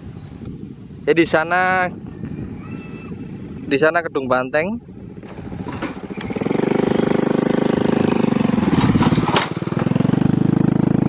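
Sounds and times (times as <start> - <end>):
motorcycle engine running: 4.8 - 11.0.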